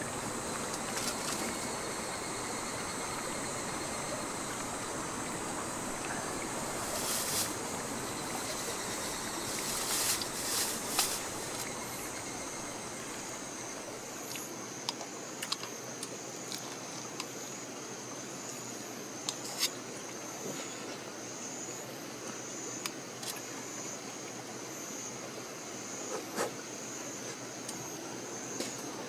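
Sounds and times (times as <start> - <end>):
running water hissing: 0.0 - 14.5
high insect trill: 0.0 - 16.6.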